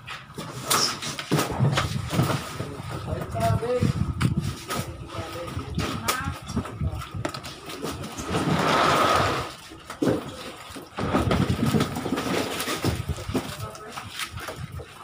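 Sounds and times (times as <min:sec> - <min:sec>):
plastic basins knocking: 0:10.0 - 0:13.9.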